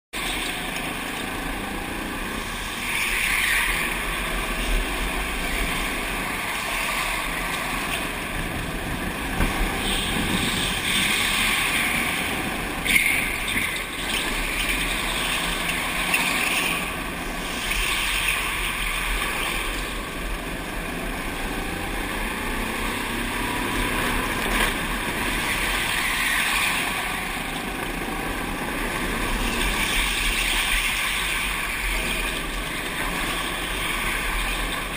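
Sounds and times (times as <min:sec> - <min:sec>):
go-kart engine running: 0:00.2 - 0:34.9
wind noise: 0:03.8 - 0:15.5.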